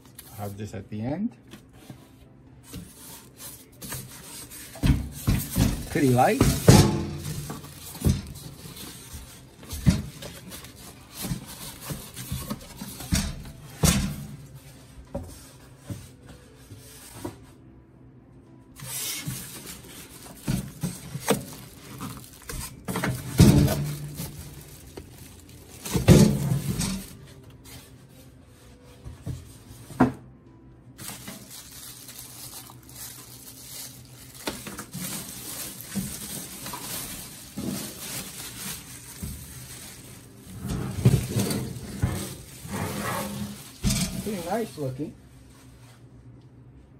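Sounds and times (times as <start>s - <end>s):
plastic bag crinkling: 19.4s - 27.2s, 31.0s - 44.9s.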